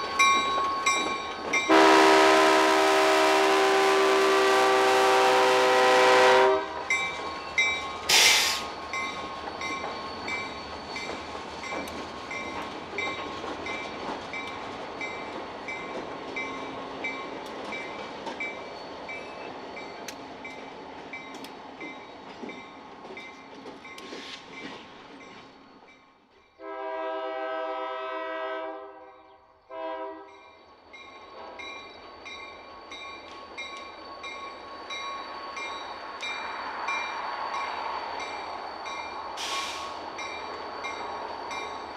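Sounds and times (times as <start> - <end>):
crossing bell dinging: 0.0 - 2.6, 6.8 - 20.6
freight train rolling: 0.0 - 41.9
locomotive air horn: 1.7 - 6.8, 26.6 - 30.4.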